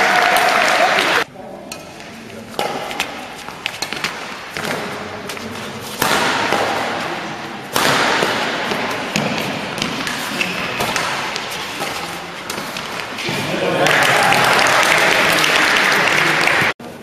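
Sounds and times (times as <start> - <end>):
rackets striking shuttlecock: 1.7 - 13.4.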